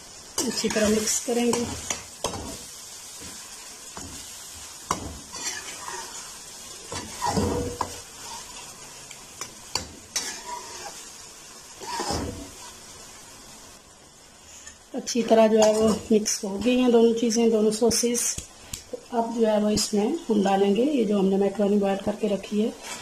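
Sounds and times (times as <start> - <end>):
frying sizzle: 0.0 - 23.0
spoon scraping metal wok: 0.4 - 2.6, 4.9 - 8.7, 9.4 - 11.1, 11.8 - 12.6.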